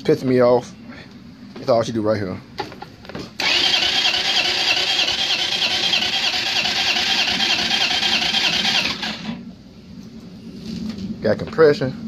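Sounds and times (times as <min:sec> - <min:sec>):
electric starter cranking engine: 0:03.4 - 0:09.4.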